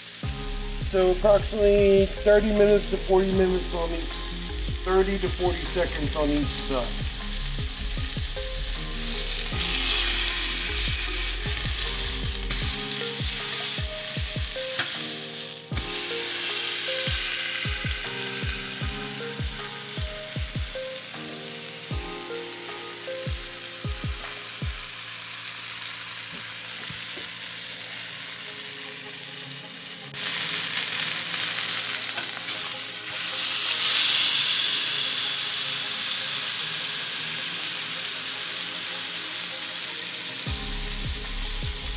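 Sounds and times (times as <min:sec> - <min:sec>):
low musical notes: 0:00.0 - 0:25.0, 0:40.4 - 0:41.9
meat sizzling in a frying pan: 0:00.0 - 0:41.9.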